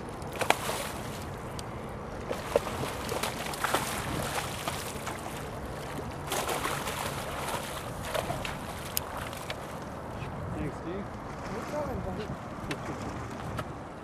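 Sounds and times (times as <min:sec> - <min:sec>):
fish thrashing and splashing: 0:00.2 - 0:01.5, 0:02.2 - 0:09.8.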